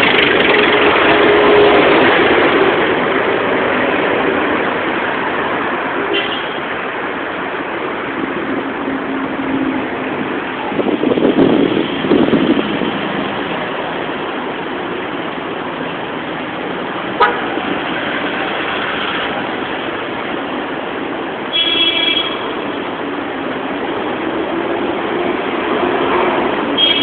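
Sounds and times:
passing vehicles: 0:00.0 - 0:27.0
car horn toot: 0:06.1 - 0:06.6, 0:17.2 - 0:17.5, 0:21.5 - 0:22.6, 0:26.8 - 0:27.0.

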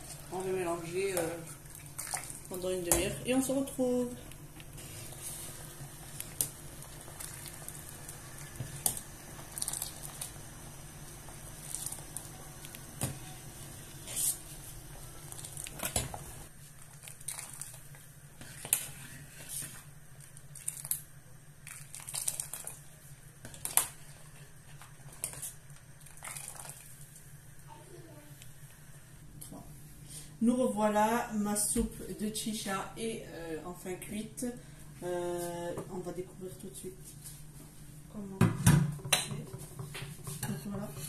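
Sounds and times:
soup bubbling in a pot: 0:01.5 - 0:02.6, 0:04.3 - 0:27.6.

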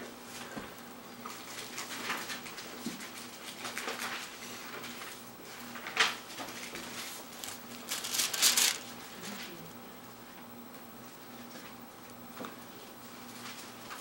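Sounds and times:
book pages rustling: 0:06.9 - 0:08.9.

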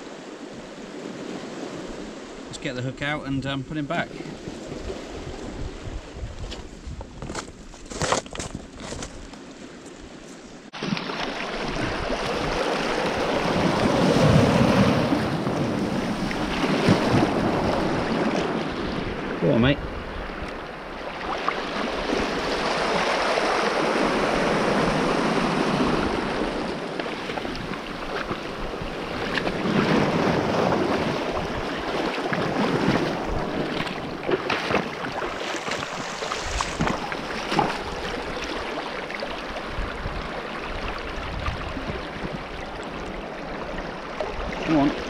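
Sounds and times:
wind rumbling on microphone: 0:04.1 - 0:45.0
waves washing over shingle: 0:10.7 - 0:19.7, 0:20.3 - 0:45.0.

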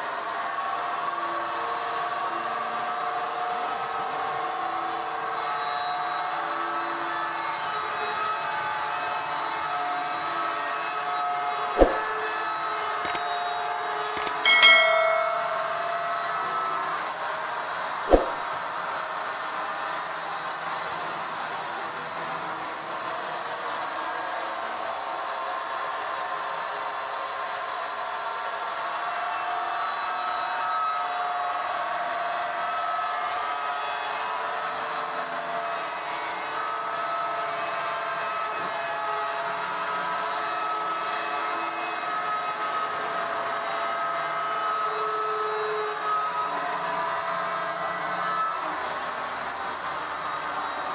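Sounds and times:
sharp click: 0:11.8 - 0:12.1, 0:13.1 - 0:13.4, 0:14.2 - 0:15.9, 0:18.1 - 0:18.4.

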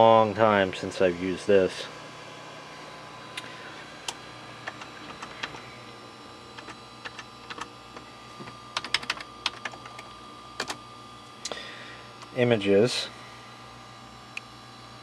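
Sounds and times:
faint electrical hum: 0:00.0 - 0:15.0
keyboard keys clicking: 0:04.6 - 0:05.6, 0:06.6 - 0:07.7, 0:08.8 - 0:10.8.

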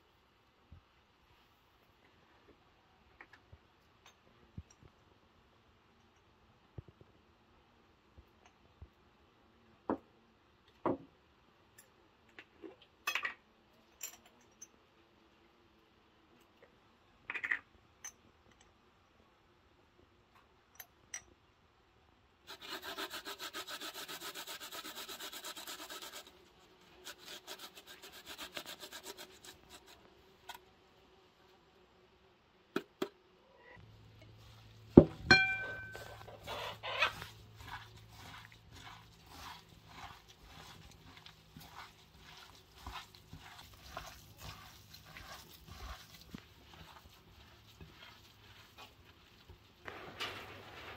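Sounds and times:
grating on metal grater: 0:22.5 - 0:26.3, 0:27.0 - 0:30.0, 0:35.6 - 0:49.7.

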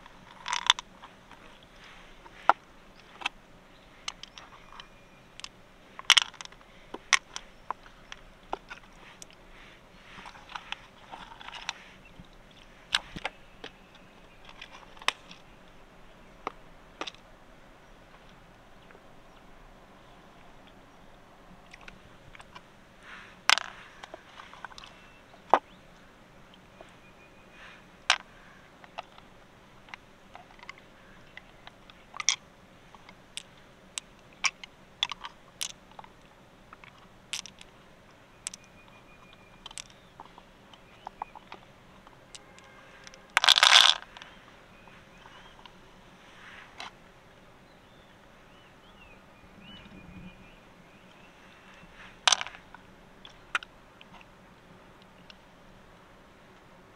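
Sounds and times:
shells clicking and tapping: 0:04.0 - 0:09.4, 0:29.9 - 0:37.7, 0:38.4 - 0:41.6, 0:52.2 - 0:52.8.

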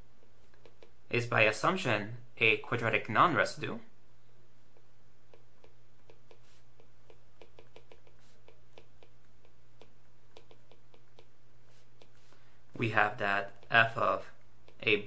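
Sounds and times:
stylus tapping on tablet screen: 0:00.2 - 0:01.0, 0:04.7 - 0:12.3.

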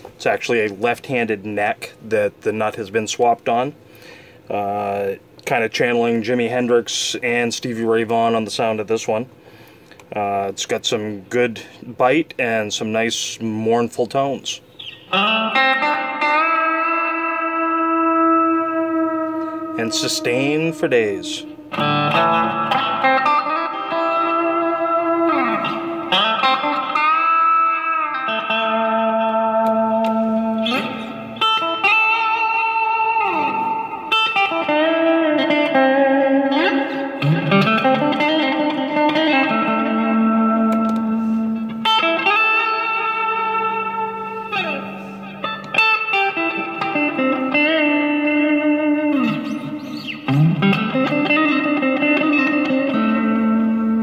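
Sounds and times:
electric guitar blues lead with bends: 0:14.5 - 0:54.0.

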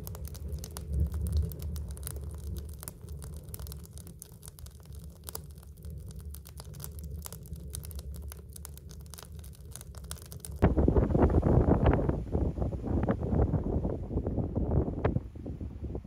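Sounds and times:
firewood crackling and popping: 0:00.0 - 0:10.8
low fire rumble: 0:00.0 - 0:16.0.

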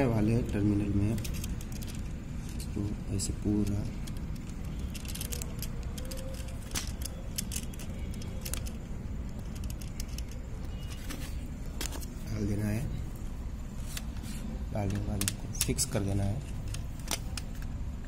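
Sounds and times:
light clicks and rattles: 0:00.3 - 0:12.1.

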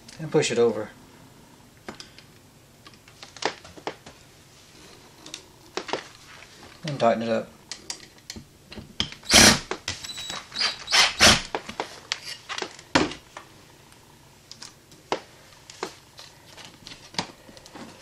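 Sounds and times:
cordless drill driving screw: 0:09.2 - 0:11.5.

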